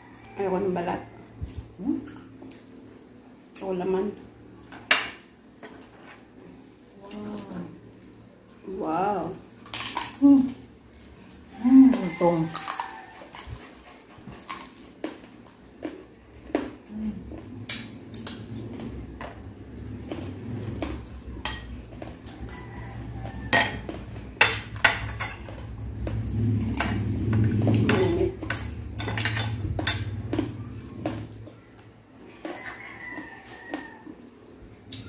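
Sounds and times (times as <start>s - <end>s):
low steady hum: 0.0s - 35.0s
cutlery clinking and scraping on a plate: 21.4s - 21.8s, 23.4s - 25.7s, 26.7s - 30.3s.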